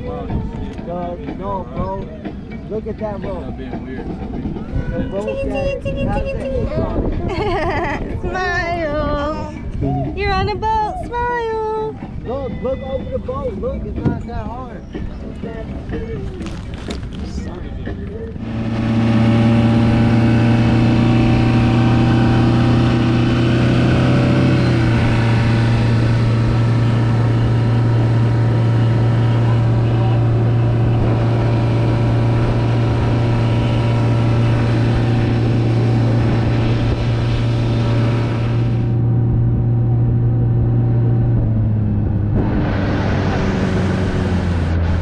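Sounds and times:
outboard motor running: 0:11.1 - 0:45.0.

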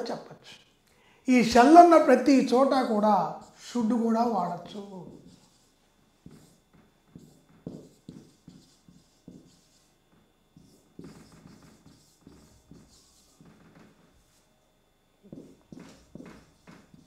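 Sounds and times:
marker writing on whiteboard: 0:04.2 - 0:14.4, 0:15.2 - 0:17.0.

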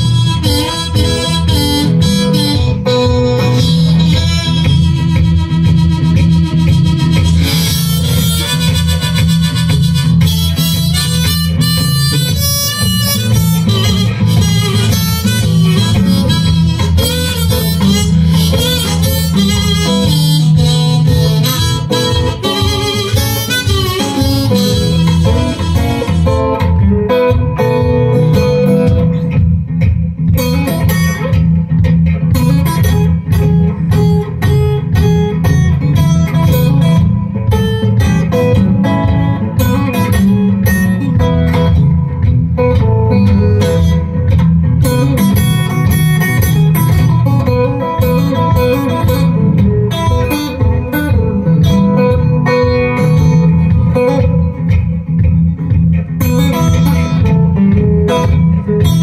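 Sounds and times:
acoustic guitar blues: 0:00.0 - 0:59.0.

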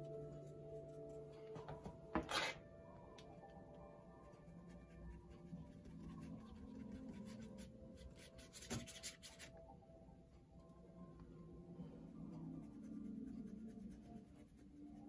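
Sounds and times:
paint brush scrubbing on paper: 0:04.6 - 0:09.5.

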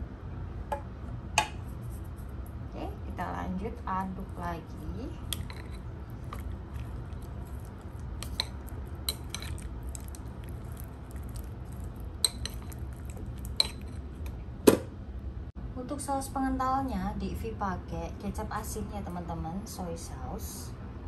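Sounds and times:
chopsticks clicking against bowl: 0:08.2 - 0:10.2.

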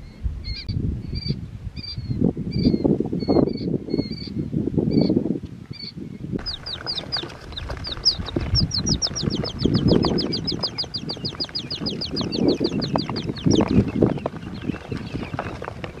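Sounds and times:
rustling in dry leaves: 0:06.4 - 0:12.6
chicks peeping: 0:06.4 - 0:16.0.

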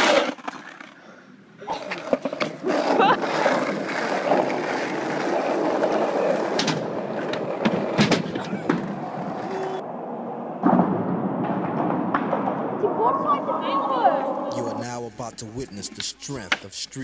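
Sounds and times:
skateboard wheels rolling on pavement: 0:00.0 - 0:01.0, 0:01.8 - 0:09.8, 0:10.7 - 0:16.6
skateboard clacks: 0:01.8 - 0:09.8.

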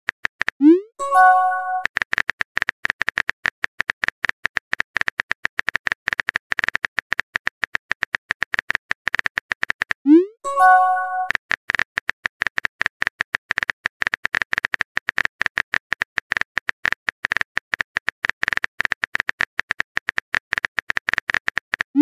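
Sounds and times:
message sent chime: 0:01.0 - 0:01.9, 0:10.4 - 0:11.3.

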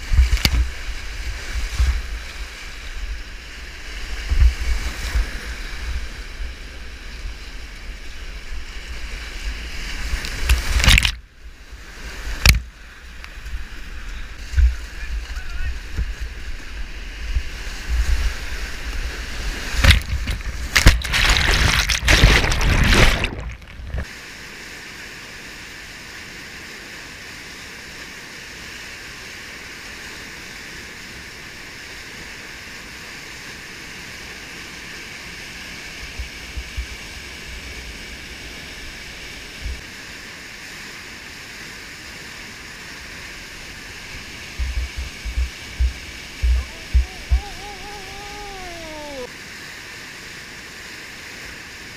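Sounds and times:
water hitting microphone: 0:17.4 - 0:24.1, 0:44.0 - 0:49.3
whitewater rapids rushing: 0:41.5 - 0:50.1.

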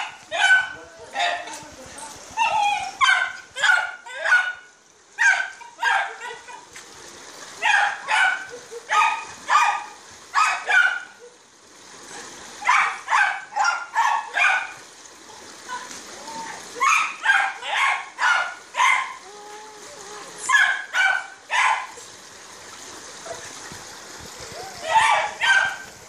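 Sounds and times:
dog barking: 0:00.0 - 0:01.5, 0:03.0 - 0:06.4, 0:07.6 - 0:11.3, 0:12.6 - 0:14.8, 0:16.8 - 0:19.2, 0:20.5 - 0:22.0, 0:24.8 - 0:25.9.

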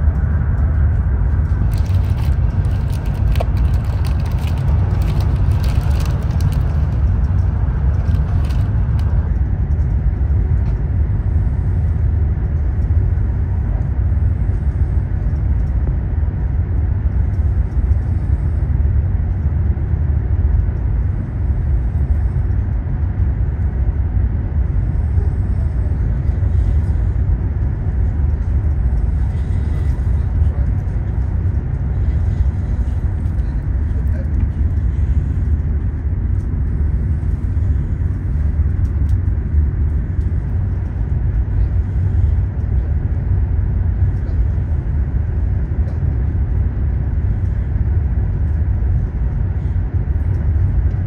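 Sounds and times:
train rumble from inside car: 0:00.0 - 0:51.0
plastic wrapper crinkling: 0:01.6 - 0:07.0, 0:08.0 - 0:09.0.

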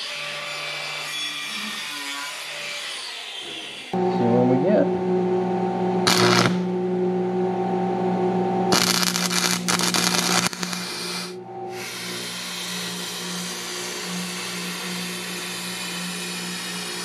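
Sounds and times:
low hum: 0:04.0 - 0:12.6
welding arc crackling: 0:06.0 - 0:06.7, 0:08.7 - 0:17.0.

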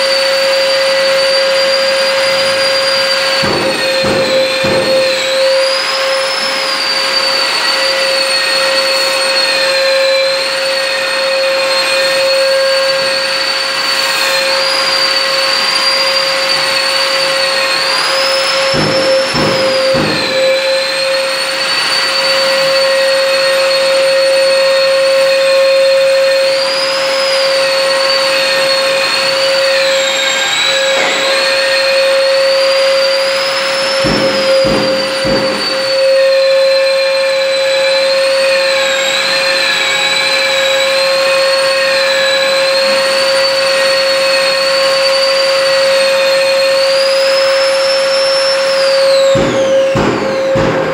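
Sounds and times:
wall sander motor hum and whine: 0:00.0 - 0:50.9
knocks: 0:03.4 - 0:05.8, 0:18.7 - 0:20.8, 0:34.0 - 0:36.3, 0:49.4 - 0:50.9.

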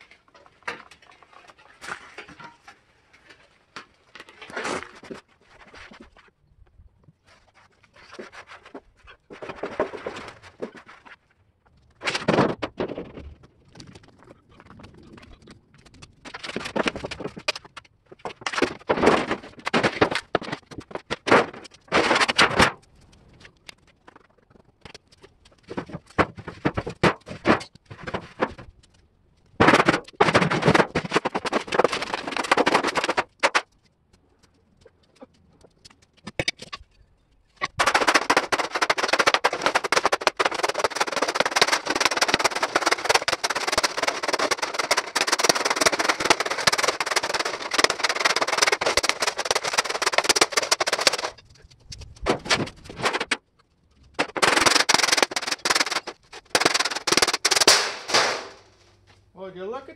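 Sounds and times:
sheet steel clanging and banging: 0:00.1 - 0:02.8, 0:54.2 - 0:58.8.

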